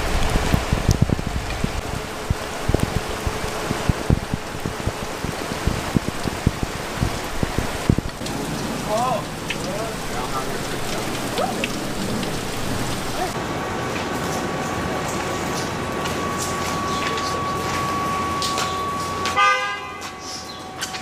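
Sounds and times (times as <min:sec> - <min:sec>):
heavy rain pouring: 0:00.0 - 0:21.0
faint voices: 0:08.3 - 0:13.4
thin steady tone: 0:14.5 - 0:21.0.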